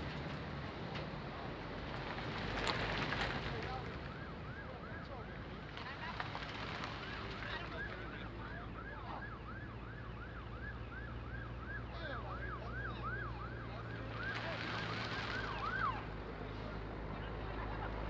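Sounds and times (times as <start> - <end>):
passing road traffic: 0.0 - 18.0
car passing with tyre rush: 1.3 - 4.2, 5.6 - 8.3, 13.9 - 18.0
emergency siren yelping: 7.2 - 16.2.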